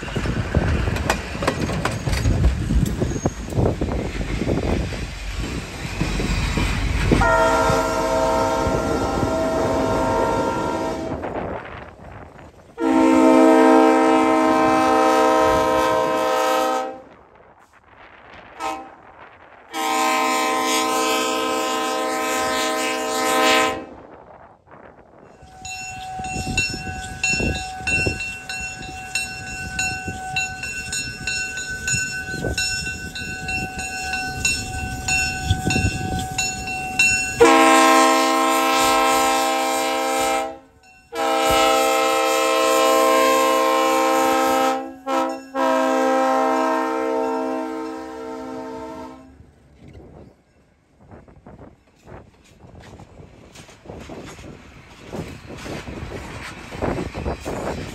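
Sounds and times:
locomotive horn blasts: 7.2s - 11.5s, 12.8s - 17.2s, 18.6s - 19.0s, 19.7s - 24.0s, 35.7s - 49.4s
bell ringing: 25.4s - 37.4s.

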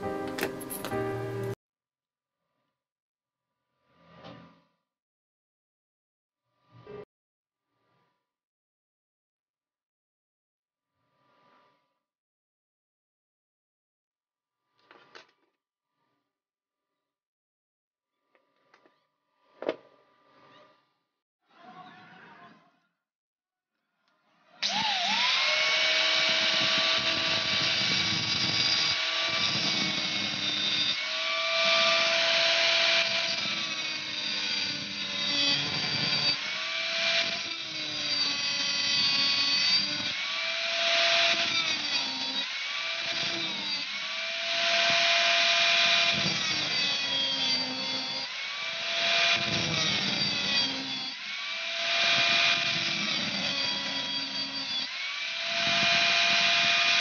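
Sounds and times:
angle grinder cutting metal: 24.6s - 57.0s.

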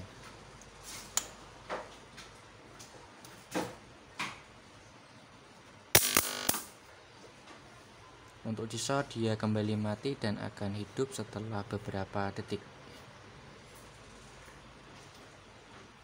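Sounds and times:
faint electrical clicks: 0.2s - 3.4s, 6.0s - 6.8s
loud electrical buzz: 5.9s - 6.8s
sharp electrical snap: 6.0s - 6.8s.

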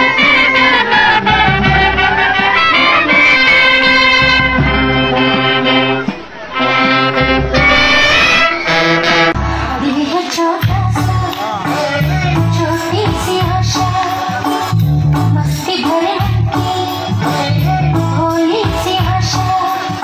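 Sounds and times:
wind band playing: 0.0s - 9.6s
bass drum: 1.2s - 6.0s, 7.0s - 8.3s, 10.6s - 15.6s, 16.2s - 19.6s.

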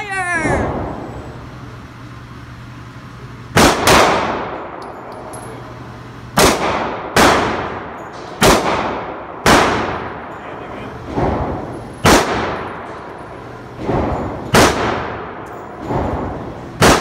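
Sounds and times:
handgun shots echoing indoors: 3.5s - 5.5s, 6.3s - 10.4s, 11.0s - 17.0s.

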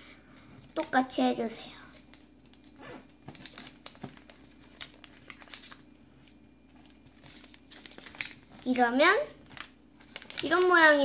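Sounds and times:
paper being folded and creased: 2.0s - 8.8s, 9.5s - 11.0s.

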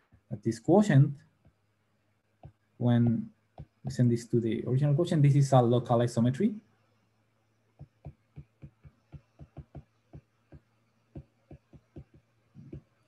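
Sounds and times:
stylus tapping on tablet screen: 2.4s - 4.0s, 7.8s - 13.0s.

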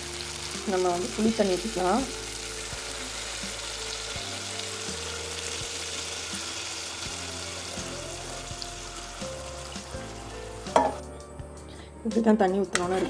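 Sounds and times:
liquid pouring into sizzling pan: 0.0s - 11.0s
background music: 0.0s - 13.0s.

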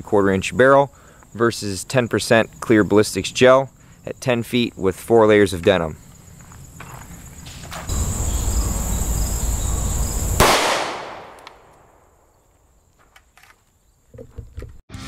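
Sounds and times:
insect buzz: 0.2s - 14.6s
pistol shot echoing: 10.4s - 12.3s.

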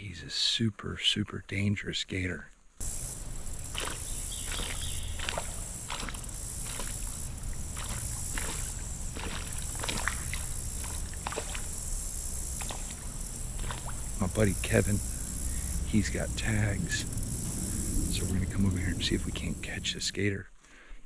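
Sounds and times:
alligator splashing and chomping: 2.8s - 20.1s
high hiss: 2.8s - 20.3s
low rumble: 4.6s - 20.3s.

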